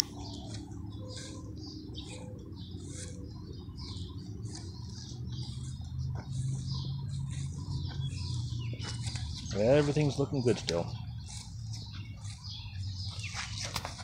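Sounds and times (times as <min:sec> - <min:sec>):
birds chirping: 0:00.0 - 0:14.0
steady low hum: 0:00.0 - 0:14.0.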